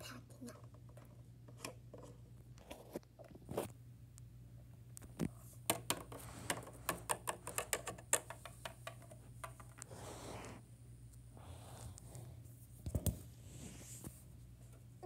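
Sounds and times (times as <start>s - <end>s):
plastic toy taps and clicks: 5.7s - 9.8s
soft scraping rustle: 11.5s - 14.8s.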